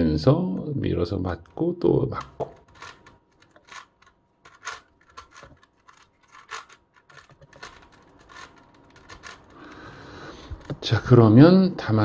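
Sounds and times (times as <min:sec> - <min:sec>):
plastic puzzle cube clicking: 0:02.1 - 0:10.8.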